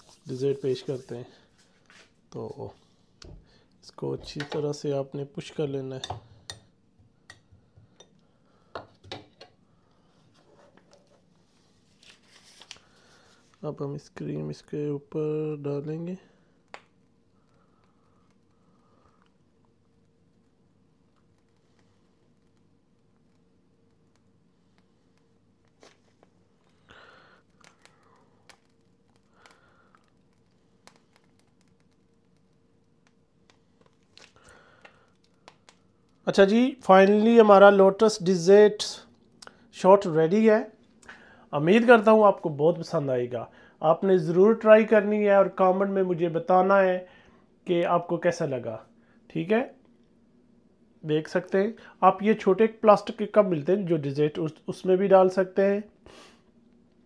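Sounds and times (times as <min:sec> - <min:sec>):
faint steady hum: 0:00.0 - 0:57.0
plastic piping bag crinkling: 0:25.2 - 0:36.2.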